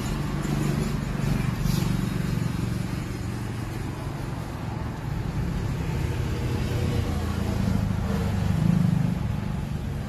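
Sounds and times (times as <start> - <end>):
metal scrape: 0.0 - 2.6.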